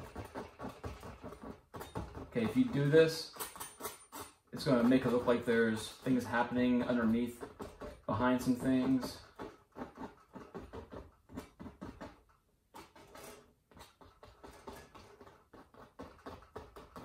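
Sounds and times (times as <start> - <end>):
palette knife scraping paint: 0.0 - 17.0.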